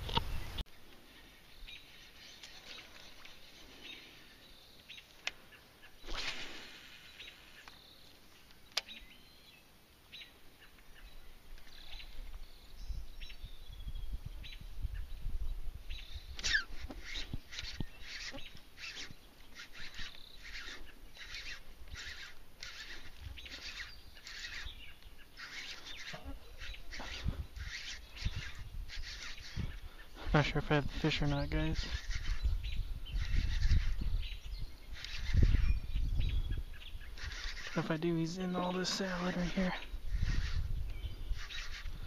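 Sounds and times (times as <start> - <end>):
small birds chirping: 0.0 - 42.0.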